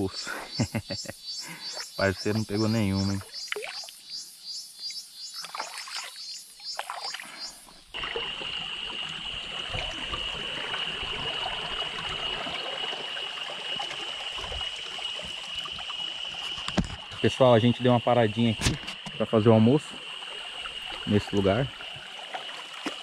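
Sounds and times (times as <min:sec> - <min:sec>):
high insect drone: 0:00.0 - 0:23.0
insects chirping: 0:00.0 - 0:23.0
stream trickling: 0:00.0 - 0:23.0
water splashing and dripping: 0:02.0 - 0:04.0, 0:05.3 - 0:17.3, 0:20.0 - 0:23.0.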